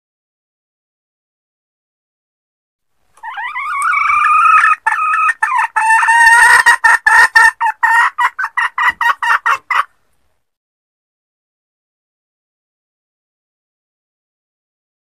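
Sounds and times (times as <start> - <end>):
hen cackling: 3.2 - 10.0.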